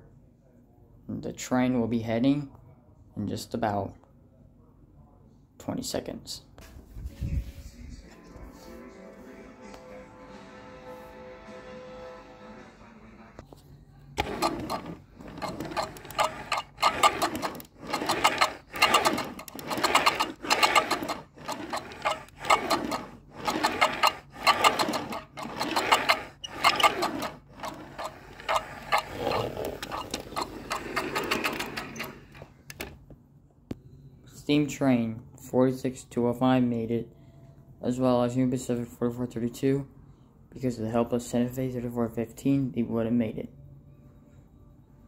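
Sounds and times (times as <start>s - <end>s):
model train clattering: 14.2s - 32.8s.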